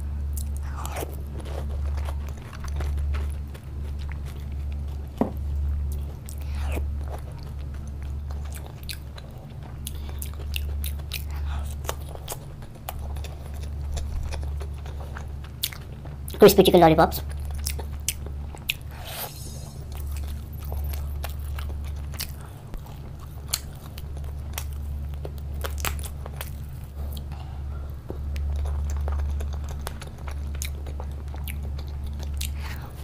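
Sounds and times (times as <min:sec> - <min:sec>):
chewing with mouth clicks: 0:00.3 - 0:16.4, 0:17.2 - 0:19.1, 0:19.8 - 0:33.0
steady low pulsing: 0:17.0 - 0:33.0.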